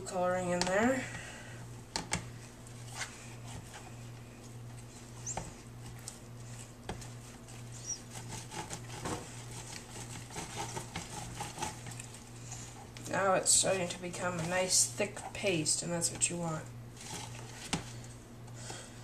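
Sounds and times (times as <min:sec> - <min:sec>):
steady low hum: 0:00.0 - 0:19.0
spatula scraping paste in tub: 0:06.5 - 0:12.1.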